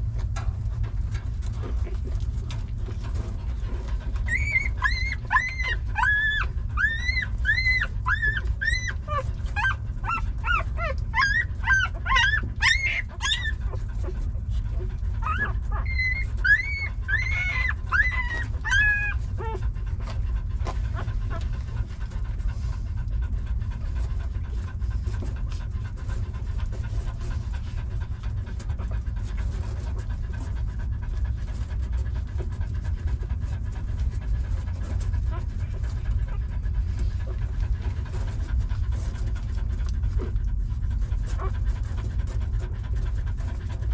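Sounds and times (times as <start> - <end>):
dog panting: 0.0 - 43.9
steady low rumble: 0.0 - 43.9
puppies squeaking and whining: 2.4 - 19.9.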